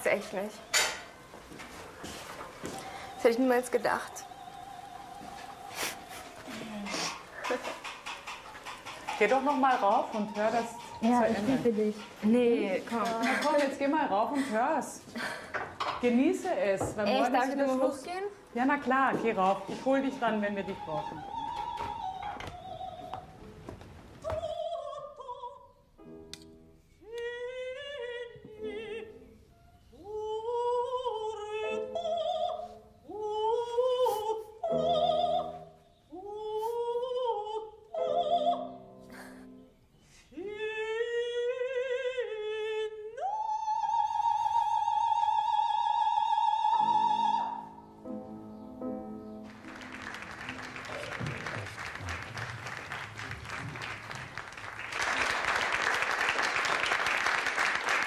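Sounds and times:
soprano singing operatic song: 0:02.6 - 0:07.6, 0:16.0 - 0:23.5, 0:24.2 - 0:26.0, 0:27.0 - 0:39.3, 0:40.2 - 0:48.0
audience applause: 0:49.4 - 0:58.0.

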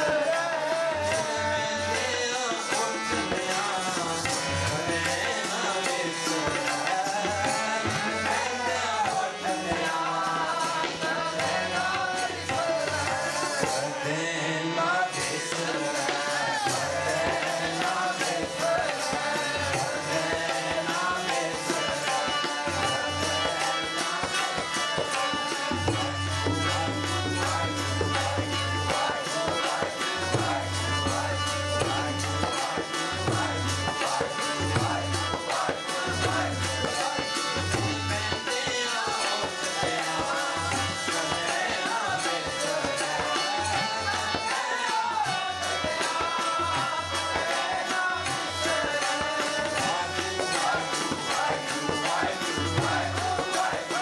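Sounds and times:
harmonium: 0:00.0 - 0:54.0
tabla rhythm: 0:00.0 - 0:54.0
voices singing a hymn: 0:00.0 - 0:54.0.

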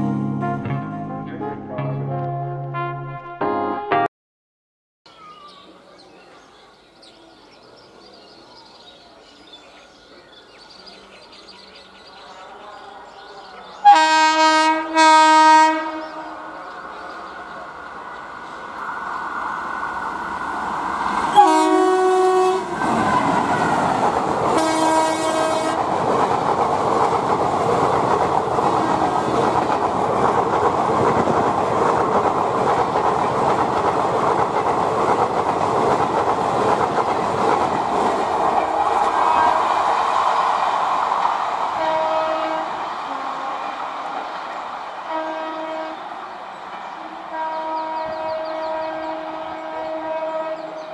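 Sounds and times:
train passing at speed: 0:07.2 - 0:50.9
train horn blast: 0:13.8 - 0:16.8, 0:21.3 - 0:23.7, 0:24.5 - 0:25.9, 0:28.7 - 0:29.5, 0:41.8 - 0:44.2, 0:45.0 - 0:46.2, 0:47.3 - 0:50.9.

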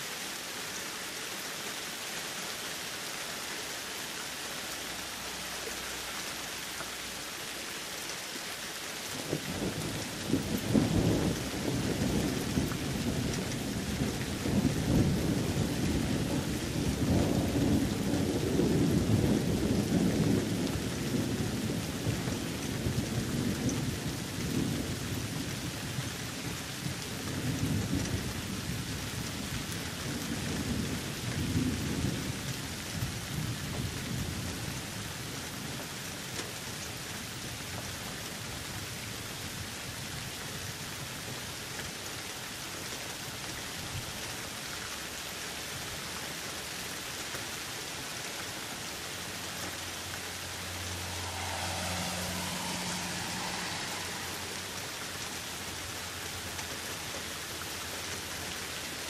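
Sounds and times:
thunder rumbling: 0:09.2 - 0:24.9, 0:49.3 - 0:56.4
rain hissing: 0:43.2 - 0:59.0.

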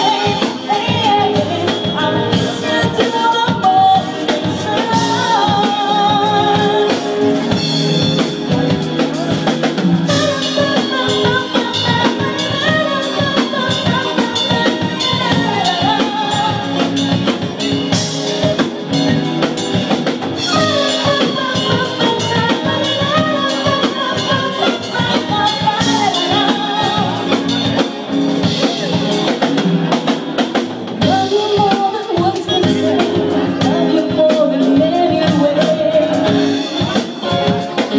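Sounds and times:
drum kit: 0:00.0 - 0:37.9
guitar: 0:00.0 - 0:37.9.

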